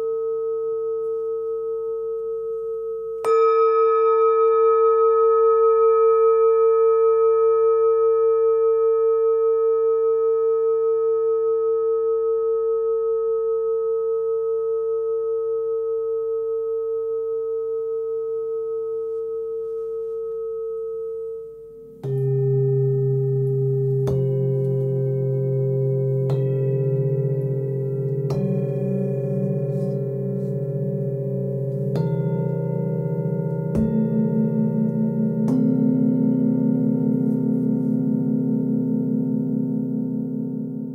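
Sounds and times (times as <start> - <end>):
lower steady ringing tones: 0.0 - 40.9
singing bowl ringing: 0.0 - 40.9.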